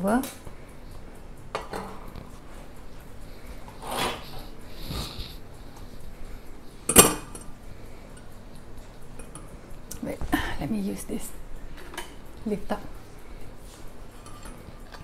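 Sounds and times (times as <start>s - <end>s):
soft brushing shuffles: 12.4s - 14.4s.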